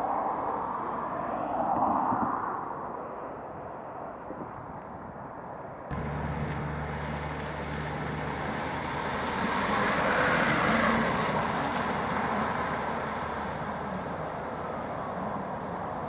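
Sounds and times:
van tyres swishing through water: 0:05.9 - 0:16.0.

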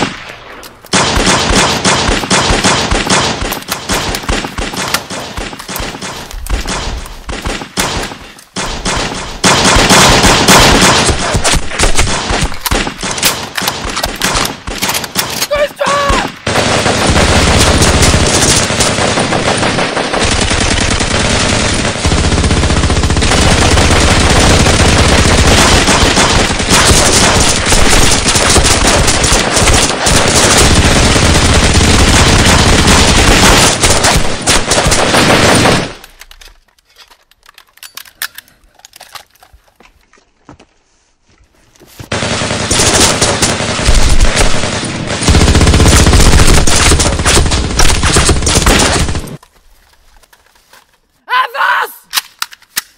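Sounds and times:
automatic gunfire: 0:00.9 - 0:36.0, 0:42.1 - 0:49.4.

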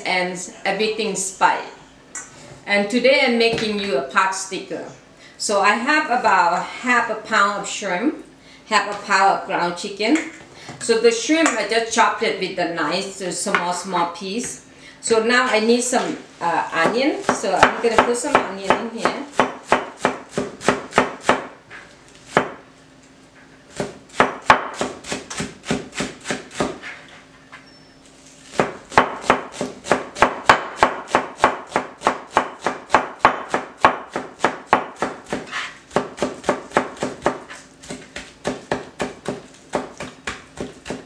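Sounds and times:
knife chopping on cutting board: 0:16.8 - 0:21.6, 0:22.3 - 0:22.6, 0:23.7 - 0:27.0, 0:28.4 - 0:41.0.

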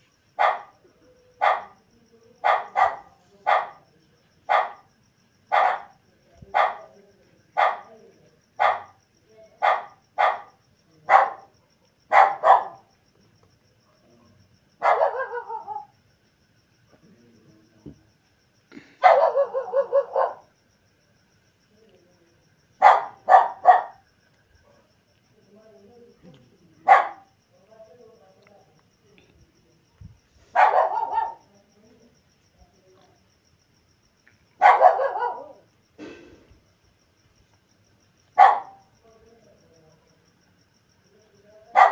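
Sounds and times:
dog barking: 0:00.4 - 0:00.8, 0:01.4 - 0:01.8, 0:02.4 - 0:03.8, 0:04.5 - 0:04.9, 0:05.5 - 0:06.9, 0:07.6 - 0:07.9, 0:08.6 - 0:09.0, 0:09.6 - 0:12.9, 0:13.8 - 0:15.9, 0:19.0 - 0:20.5, 0:22.8 - 0:24.0, 0:26.8 - 0:27.3, 0:30.5 - 0:31.5, 0:34.6 - 0:35.6, 0:38.4 - 0:38.9.

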